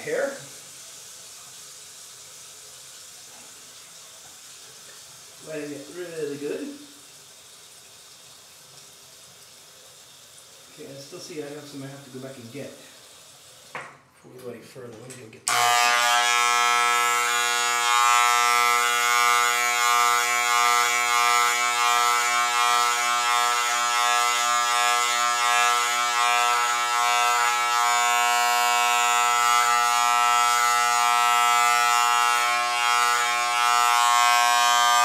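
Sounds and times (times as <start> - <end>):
electric hair clippers buzzing: 15.5 - 35.0.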